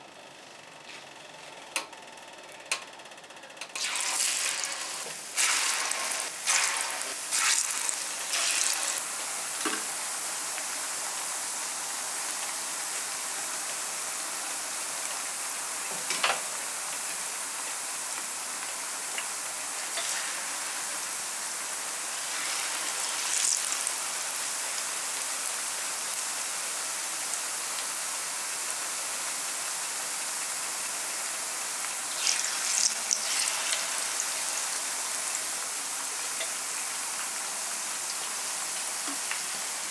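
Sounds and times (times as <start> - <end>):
oil crackling: 3.8 - 9.1
plantain frying in oil: 3.8 - 15.8, 16.4 - 39.9.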